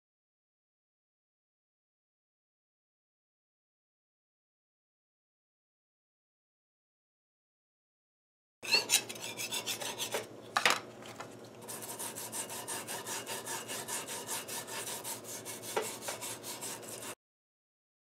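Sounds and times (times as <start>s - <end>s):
wire brush scrubbing metal: 8.6s - 10.3s, 11.6s - 17.2s.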